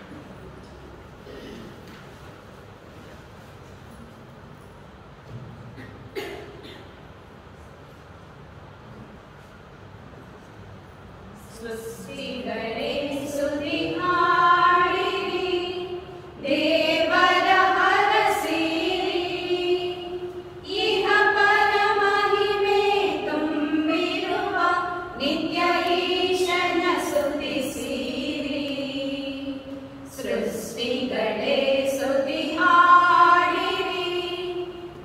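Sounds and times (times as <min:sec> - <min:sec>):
women singing unaccompanied: 0:11.6 - 0:35.0.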